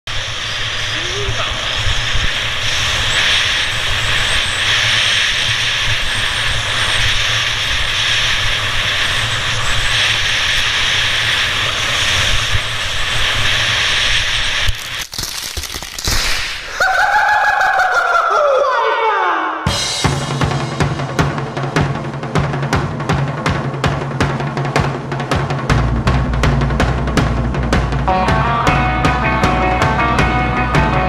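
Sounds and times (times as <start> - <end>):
wind buffeting a microphone: 0.1 - 14.8
skis sliding on snow: 0.4 - 17.0
music with falling tone: 28.1 - 31.0.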